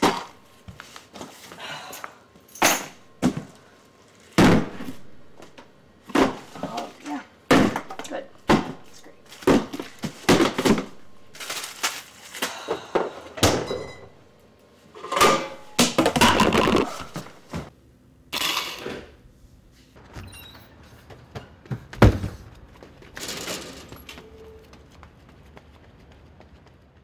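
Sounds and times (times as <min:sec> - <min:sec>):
knocks and thuds: 0:21.7 - 0:22.5.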